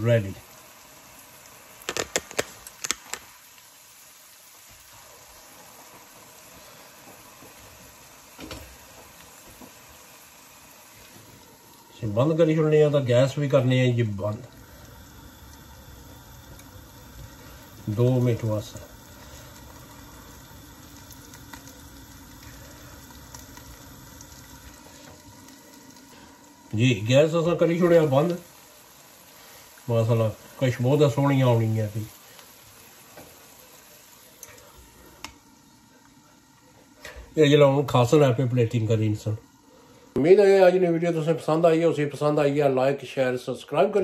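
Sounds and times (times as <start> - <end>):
food sizzling in a wok: 0.0 - 42.5
faint pops: 1.8 - 3.3.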